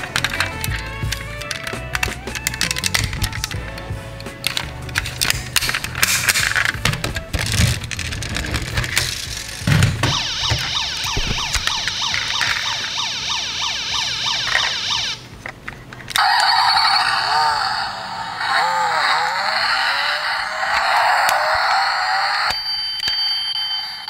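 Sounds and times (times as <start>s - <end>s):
toy cars clicking: 0.0s - 23.2s
electronic toy siren yelping: 10.0s - 15.2s, 16.1s - 22.6s.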